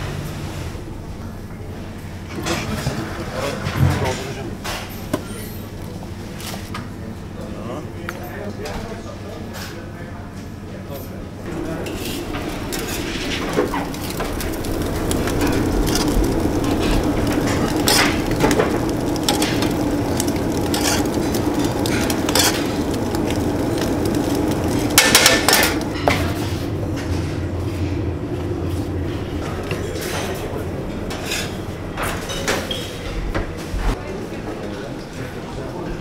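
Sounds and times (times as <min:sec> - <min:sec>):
kitchen hum: 0:00.0 - 0:34.1
loud clattering: 0:11.5 - 0:28.1
metal tongs scraping a plate: 0:19.1 - 0:21.2, 0:22.0 - 0:22.7.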